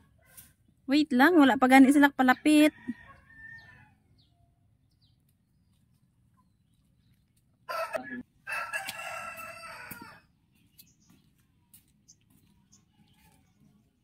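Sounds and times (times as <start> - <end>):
rooster crowing: 2.7 - 4.0, 7.7 - 10.3.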